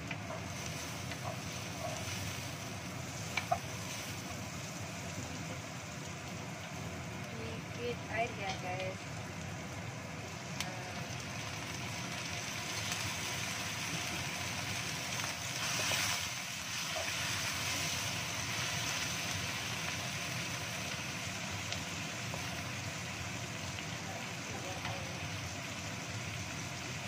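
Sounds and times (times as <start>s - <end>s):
wooden spatula stirring: 0.0s - 4.3s
vegetables sizzling in a wok: 0.0s - 27.0s.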